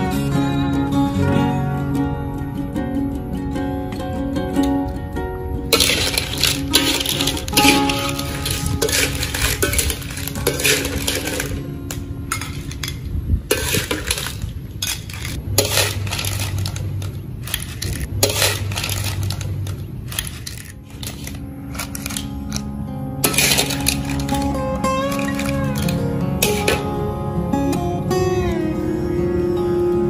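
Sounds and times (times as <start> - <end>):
metal ladle scraping in wok: 5.7 - 22.6, 23.2 - 26.9.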